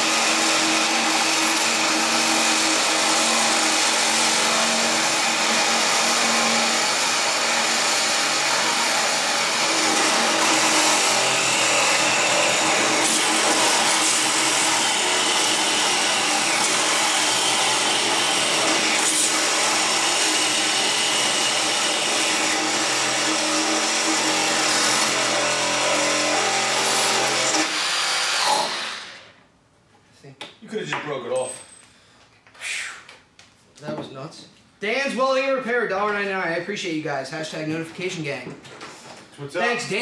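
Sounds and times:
reciprocating saws cutting nails: 0.0s - 29.3s
man's voice: 33.8s - 38.6s, 39.4s - 40.0s.

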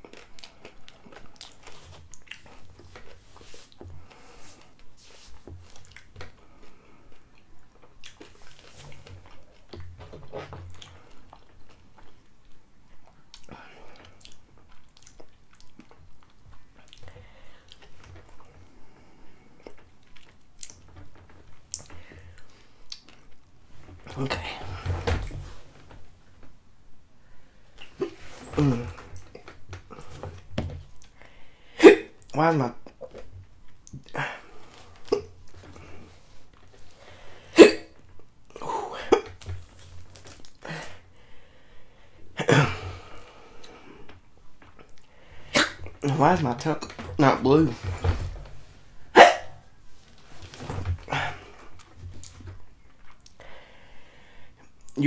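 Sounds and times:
man hiccuping: 28.0s - 29.0s, 31.8s - 32.3s, 37.6s - 38.0s, 38.6s - 39.3s, 42.4s - 42.8s, 45.6s - 46.1s, 49.1s - 49.6s.

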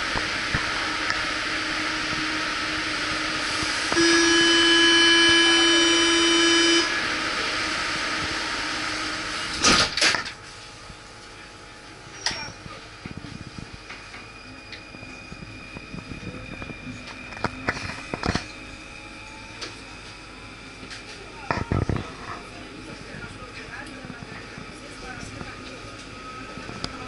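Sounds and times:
door warning buzzer: 3.9s - 7.0s
train doors banging shut: 9.5s - 10.4s.

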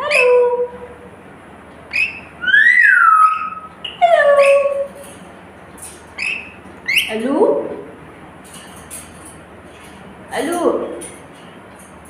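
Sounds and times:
lorikeet whistled calls: 1.9s - 4.8s, 6.2s - 7.2s.

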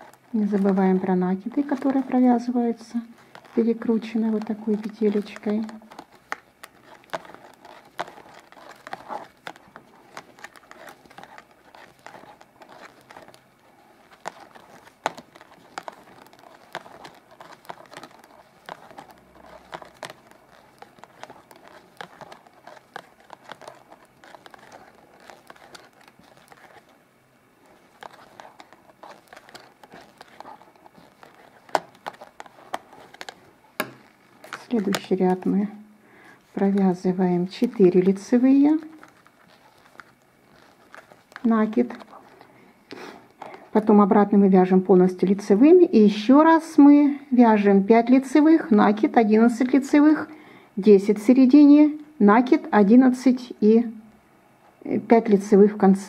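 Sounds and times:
knitting needles clicking: 0.0s - 27.0s, 27.6s - 35.6s
yarn rustling: 0.0s - 47.0s.

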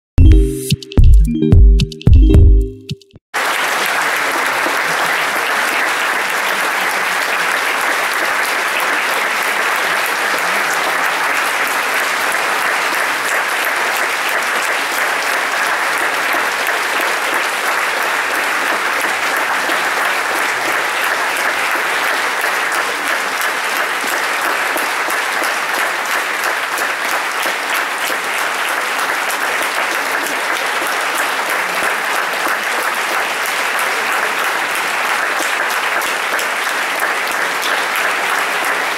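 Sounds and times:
audience applauding: 3.4s - 38.9s.

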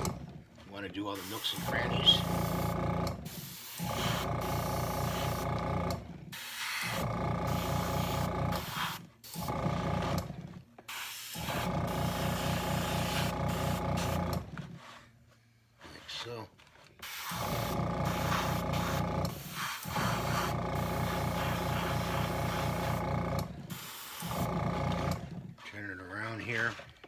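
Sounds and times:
air compressor humming: 0.0s - 15.0s, 17.0s - 25.6s
airbrush spraying: 1.1s - 5.5s, 6.3s - 9.5s, 10.9s - 14.3s, 17.0s - 23.0s, 23.7s - 24.5s.

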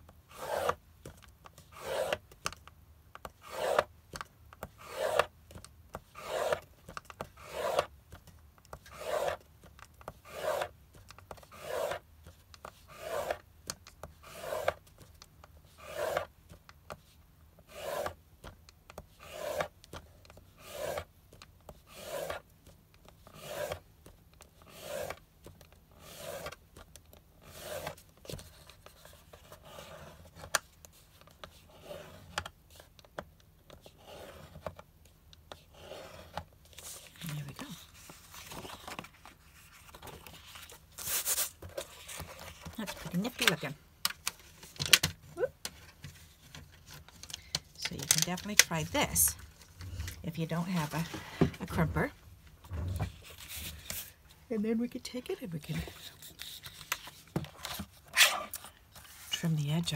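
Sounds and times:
scoring tool scraping cardstock: 0.3s - 0.8s, 1.5s - 2.2s, 3.3s - 3.9s, 4.6s - 5.3s, 6.1s - 7.9s, 8.7s - 9.4s, 10.0s - 12.0s, 12.6s - 13.4s, 14.1s - 14.8s, 15.7s - 16.3s, 17.6s - 18.2s, 19.0s - 19.7s, 20.6s - 21.1s, 21.7s - 22.5s, 23.1s - 23.9s, 24.6s - 25.2s, 25.9s - 26.6s, 27.4s - 30.5s, 31.4s - 32.9s, 33.7s - 34.8s, 35.5s - 43.8s, 47.8s - 52.1s.

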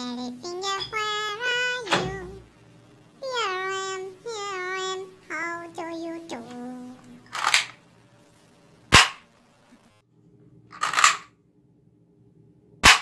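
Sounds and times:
toy gun pops: 8.9s - 9.2s.

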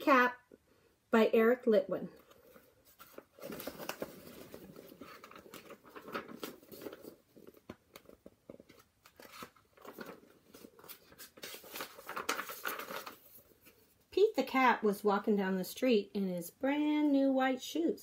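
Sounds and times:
book pages turning: 2.2s - 14.0s.

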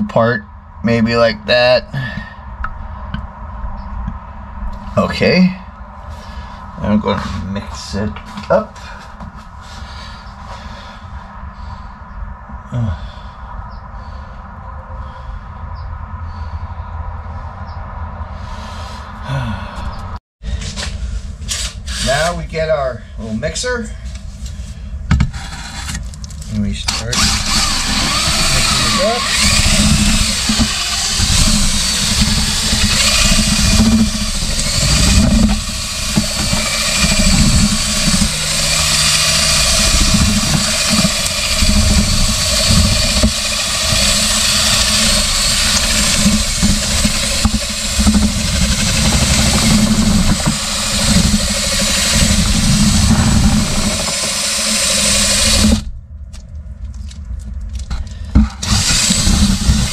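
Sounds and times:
power drill mixing thick paste: 21.5s - 22.4s, 25.3s - 26.0s, 26.8s - 55.9s, 58.4s - 59.9s.

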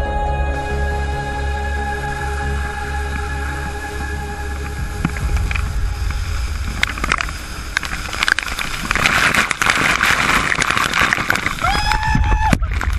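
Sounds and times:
waterfall rumbling: 0.0s - 12.9s
water splattering on camera: 3.1s - 12.9s.

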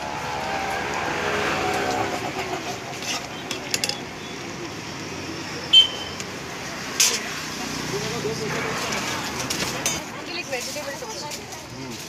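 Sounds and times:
street noise: 0.0s - 12.0s
utensils clinking on metal pan: 8.8s - 10.8s.

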